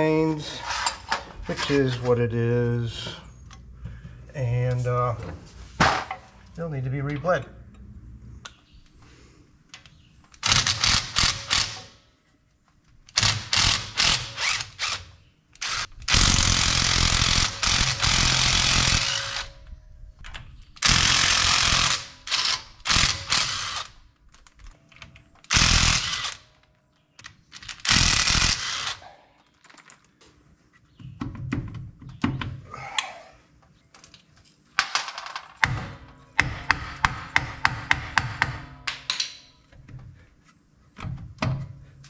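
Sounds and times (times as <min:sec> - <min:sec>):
impact driver hammering: 0:35.6 - 0:39.1.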